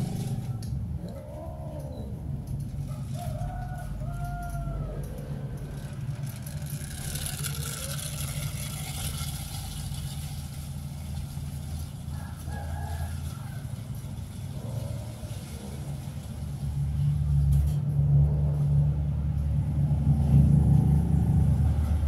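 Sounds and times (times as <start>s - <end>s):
vehicle engine rumbling: 0.0s - 22.0s.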